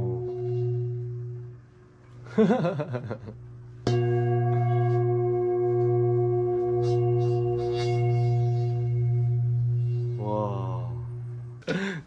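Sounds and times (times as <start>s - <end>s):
singing bowl ringing: 0.0s - 1.8s, 3.6s - 11.6s.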